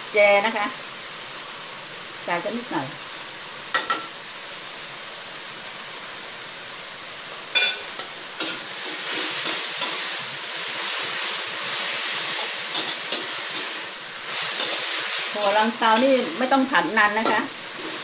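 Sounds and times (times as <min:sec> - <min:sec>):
vegetables sizzling in a wok: 0:00.0 - 0:18.0
metal spatula clanging on wok: 0:07.6 - 0:08.6.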